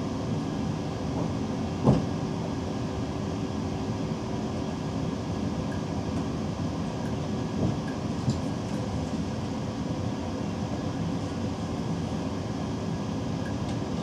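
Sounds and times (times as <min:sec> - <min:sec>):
train wheels rumbling on track: 0:00.6 - 0:02.5, 0:05.6 - 0:09.6.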